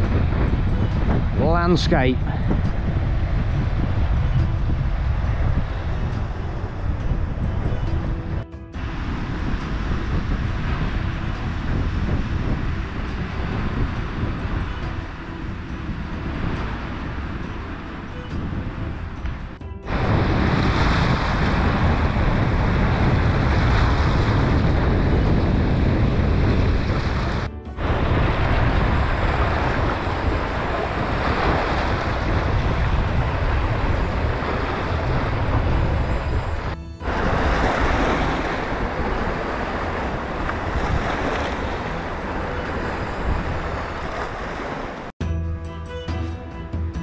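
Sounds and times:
waves washing through boulders: 0.0s - 7.1s, 8.8s - 18.1s, 19.9s - 45.1s
wind buffeting microphone: 0.0s - 45.2s.

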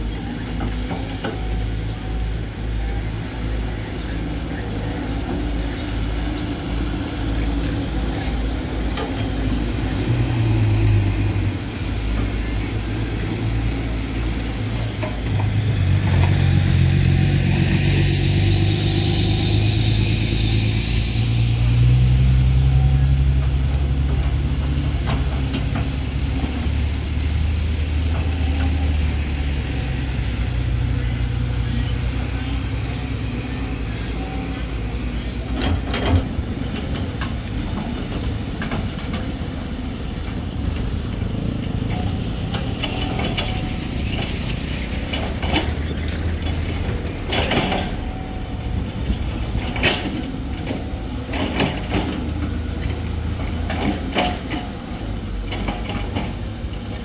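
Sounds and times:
excavator diesel engine running: 0.0s - 57.0s
high whine: 14.6s - 23.8s.

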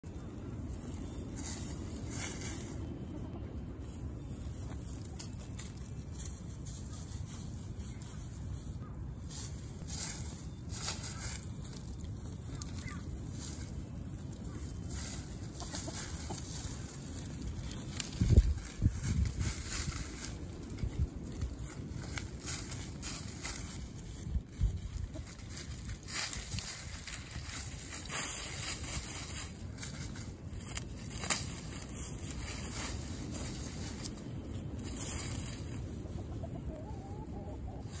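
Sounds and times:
steady low rumble: 0.0s - 38.0s
chickens clucking: 0.1s - 38.0s
hens clucking softly: 14.6s - 17.0s, 35.6s - 38.0s.

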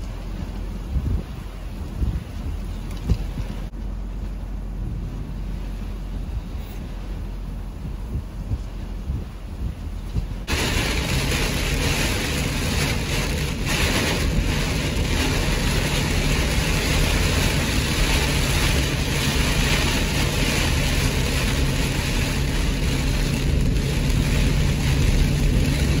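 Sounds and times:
car engine and tyres humming: 0.0s - 26.0s
heavy rain on car windshield: 10.4s - 26.0s.

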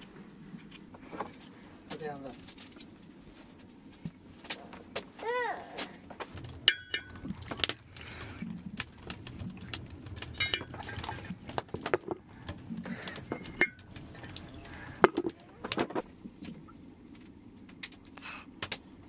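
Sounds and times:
water splashing: 6.4s - 15.7s
metal clinks and dish clatter: 6.7s - 7.2s, 10.4s - 10.9s, 13.3s - 13.8s.

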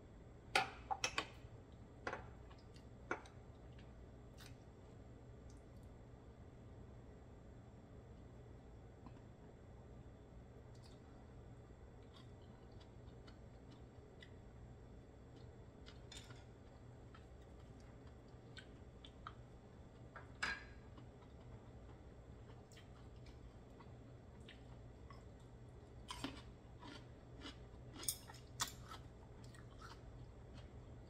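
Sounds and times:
low steady hum: 0.0s - 31.0s
chewing: 12.0s - 14.4s, 15.3s - 31.0s.

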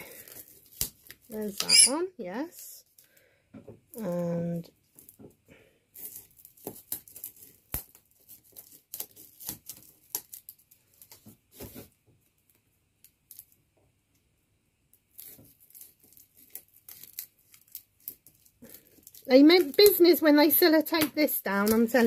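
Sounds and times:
tape tearing and crackling: 0.0s - 1.7s, 5.9s - 11.8s, 15.0s - 22.0s.

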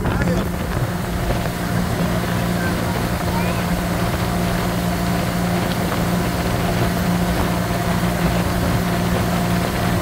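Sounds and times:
motorboat engine drone: 0.0s - 10.0s
rush of wind and water: 0.0s - 10.0s.

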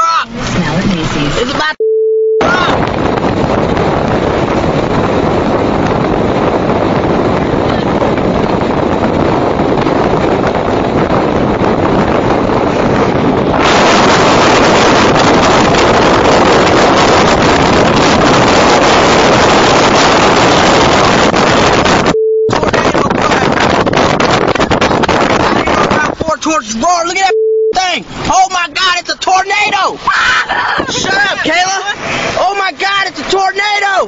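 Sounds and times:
car road noise: 0.0s - 1.8s, 2.4s - 34.0s
short beep: 1.8s - 2.7s, 22.1s - 22.6s, 27.2s - 27.8s
wind on microphone: 2.4s - 26.4s, 30.2s - 32.4s.

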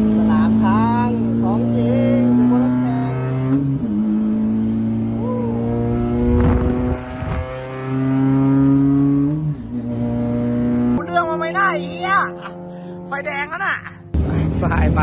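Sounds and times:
race car engine shifting gears: 3.2s - 11.0s.

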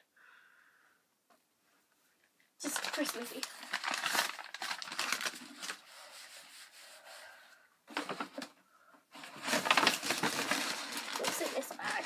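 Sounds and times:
packaging rustling and crinkling: 2.6s - 6.0s, 9.2s - 12.0s.

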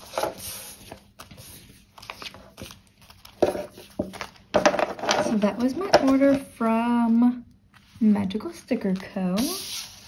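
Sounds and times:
paper and plastic crinkling: 0.0s - 6.6s.

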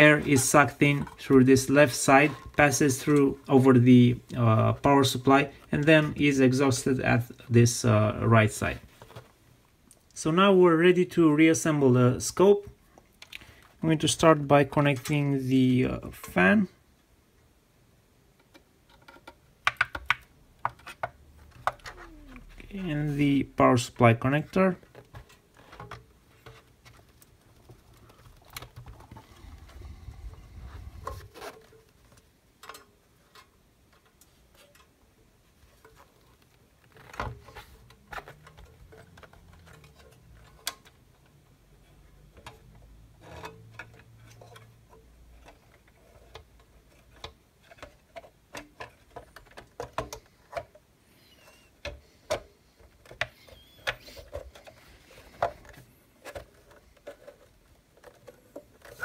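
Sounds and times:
soft handling noise: 0.0s - 16.8s, 20.5s - 59.0s
light clicks of metal and plastic: 31.0s - 50.9s, 51.8s - 59.0s.

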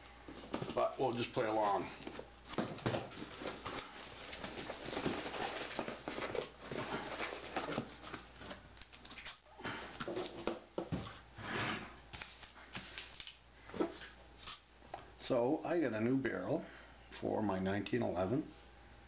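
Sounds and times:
cardboard and plastic rustling: 0.2s - 8.7s.

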